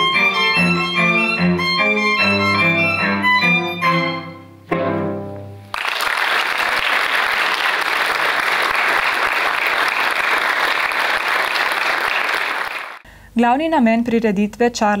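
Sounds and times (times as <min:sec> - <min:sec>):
violin and cello duo: 0:00.0 - 0:04.9
audience applause: 0:05.7 - 0:13.0.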